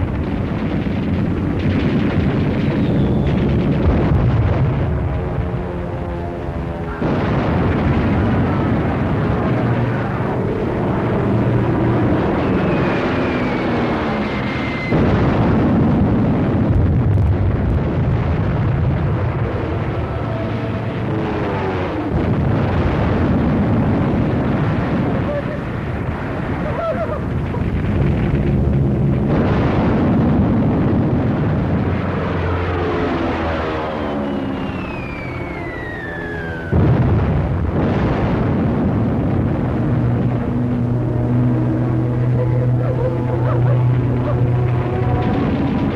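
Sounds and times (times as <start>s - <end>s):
aircraft noise: 0.0s - 45.9s
explosions rumbling: 0.0s - 45.9s
high whistle sliding down: 34.2s - 36.7s.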